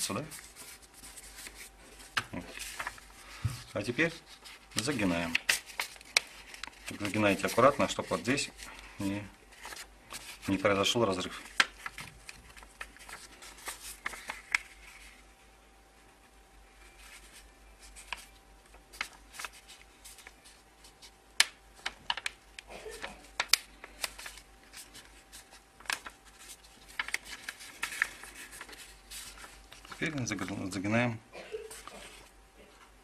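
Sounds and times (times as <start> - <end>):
paper being folded and creased: 0.0 - 8.9, 9.5 - 15.2, 16.8 - 30.8, 31.7 - 32.3.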